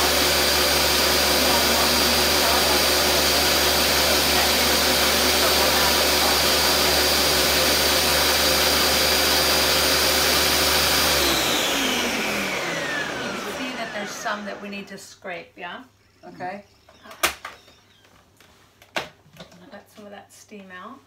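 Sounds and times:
blender motor whine: 0.0 - 15.0.

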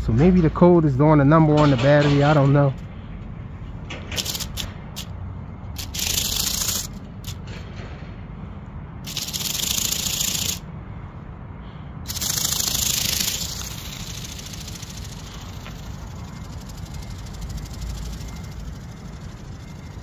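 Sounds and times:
toy motor and flapping wings buzzing: 4.1 - 7.5, 9.0 - 10.7, 12.0 - 20.0.

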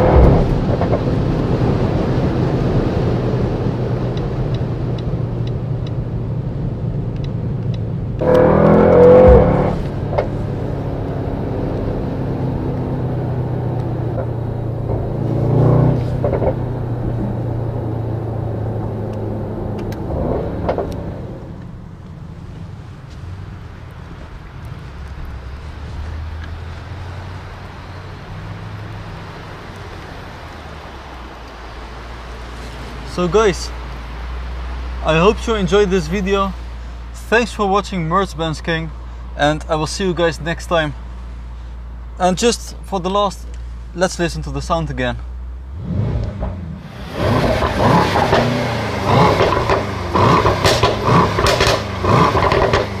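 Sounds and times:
exhaust pops and crackles: 0.0 - 6.1, 6.9 - 10.8, 13.7 - 34.1, 46.0 - 53.0
car engine low rumble: 0.0 - 53.0.

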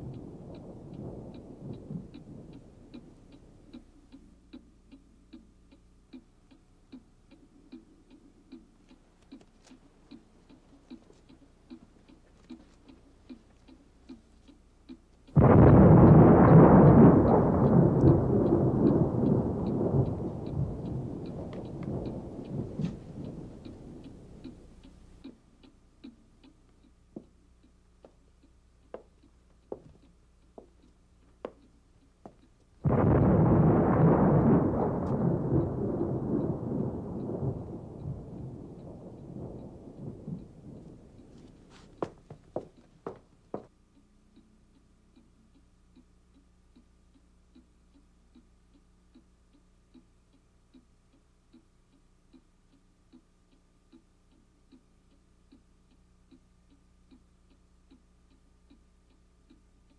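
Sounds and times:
thunder clap rumbling: 0.0 - 3.8, 15.3 - 24.8, 32.8 - 42.7
clock ticking: 0.0 - 59.9.

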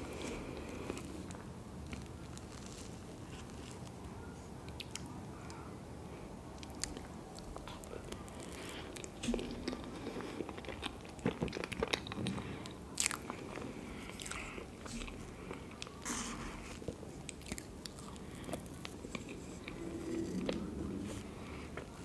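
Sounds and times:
wet chewing: 6.6 - 22.0.

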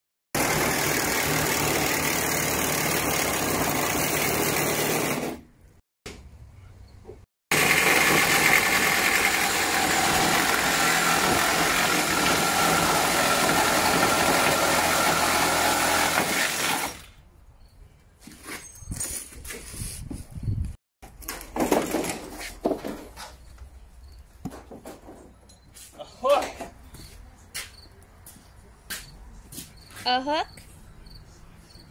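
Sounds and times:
power tool grinding metal: 7.5 - 17.0.

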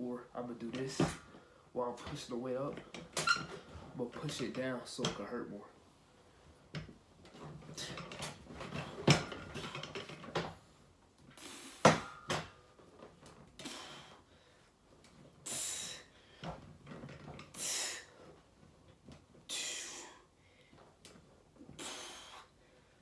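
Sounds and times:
strained forceful exhales: 13.6 - 14.6, 15.4 - 16.6, 17.5 - 18.4, 19.5 - 20.7, 21.6 - 23.0.

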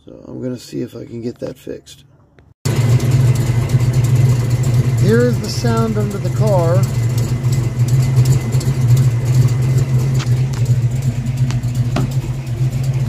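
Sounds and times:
car engine idling with exhaust knock: 2.7 - 13.0.

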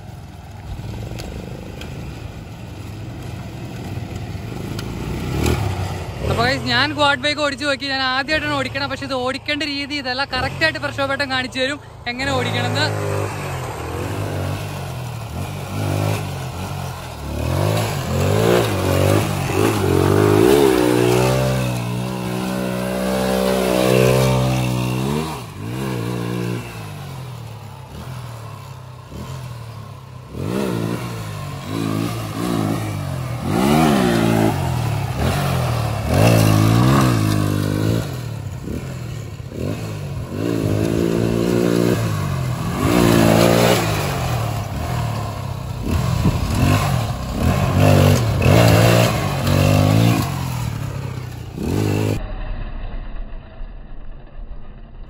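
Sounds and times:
quad bike engine revving: 0.0 - 52.3.

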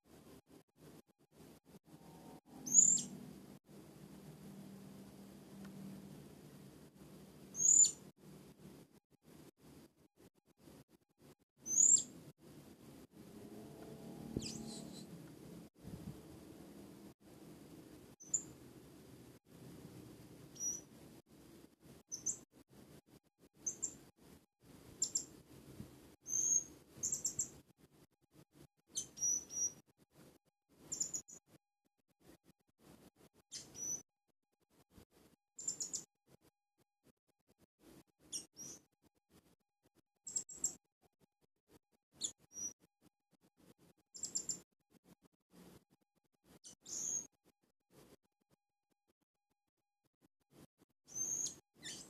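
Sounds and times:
parrot high thin chirps: 2.6 - 3.1, 7.5 - 8.0, 11.6 - 12.1, 20.6 - 20.8, 26.3 - 27.5, 28.9 - 29.8, 30.9 - 31.2, 33.5 - 34.0, 35.6 - 36.0, 38.3 - 38.8, 46.8 - 47.3, 51.1 - 52.0.

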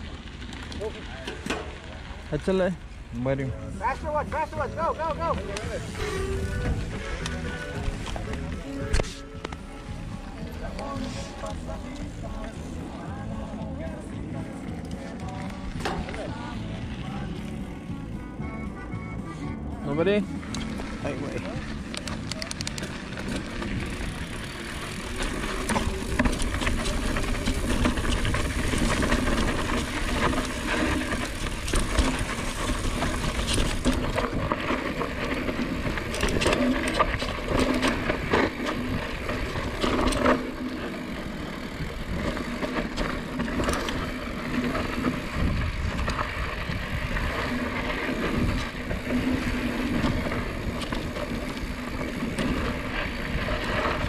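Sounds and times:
bike chain and frame rattling: 0.0 - 17.8, 19.9 - 54.0
bike tyres on dirt and rocks: 0.0 - 54.0.

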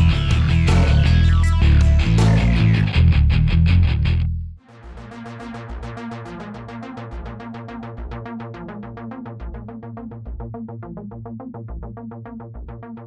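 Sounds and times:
deep bass beat: 0.0 - 5.1.

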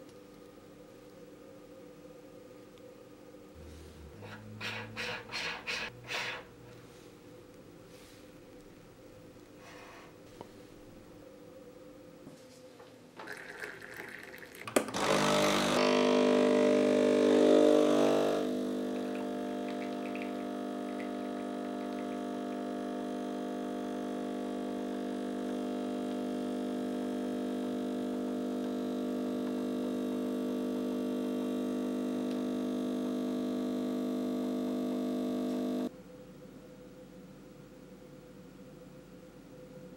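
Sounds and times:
espresso machine pump buzzing: 13.2 - 35.9.

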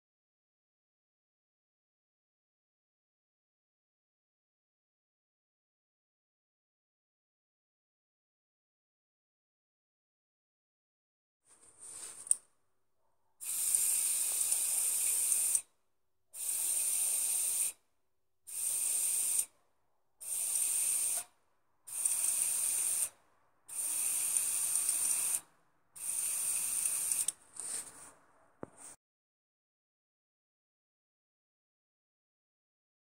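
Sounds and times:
bursts of hissing air: 13.4 - 15.6, 16.4 - 17.8, 18.5 - 19.5, 20.2 - 21.3, 21.9 - 25.4, 26.0 - 27.3.

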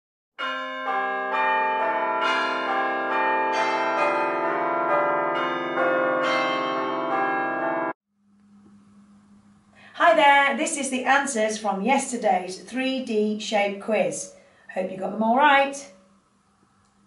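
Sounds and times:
peal of bells ringing: 0.4 - 8.0.

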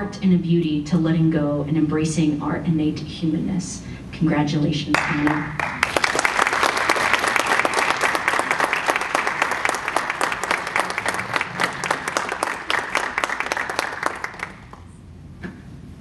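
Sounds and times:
audience applause: 5.6 - 14.9.

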